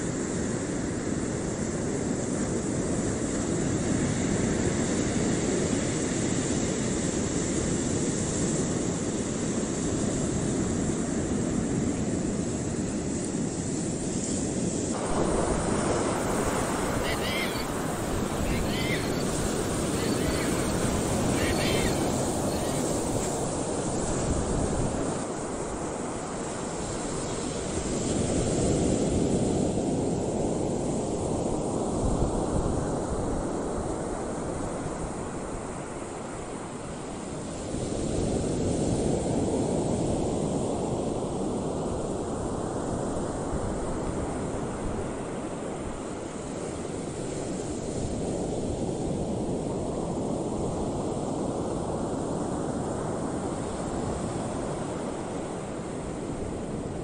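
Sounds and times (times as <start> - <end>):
choppy open water: 0.0 - 57.0
wind rushing: 15.0 - 25.0.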